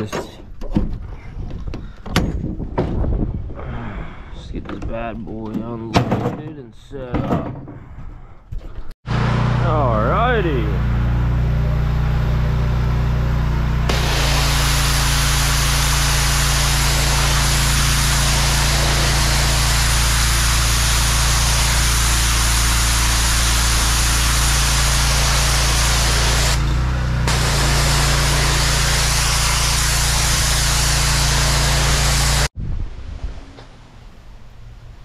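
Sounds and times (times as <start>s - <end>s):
pressure washer engine running: 9.0s - 32.5s
water jet hissing on concrete: 13.8s - 32.6s.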